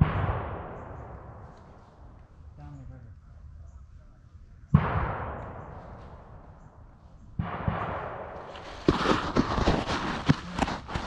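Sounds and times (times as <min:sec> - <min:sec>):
gunshots with rolling echo: 0:00.0 - 0:02.8, 0:04.7 - 0:09.9
footsteps: 0:05.7 - 0:06.6, 0:08.4 - 0:11.0.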